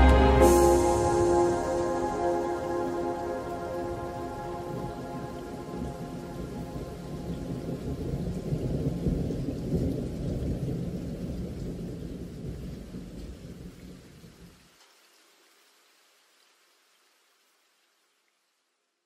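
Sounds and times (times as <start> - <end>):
rain: 0.0 - 19.0
low rumble of thunder: 3.4 - 14.0.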